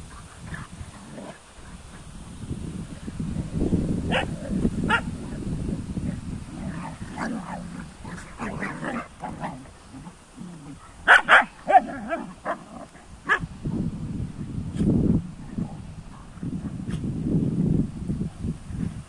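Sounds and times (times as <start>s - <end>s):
dogs growling: 0.1s - 2.1s, 6.0s - 13.1s
dog barking: 4.1s - 5.1s, 11.0s - 12.6s.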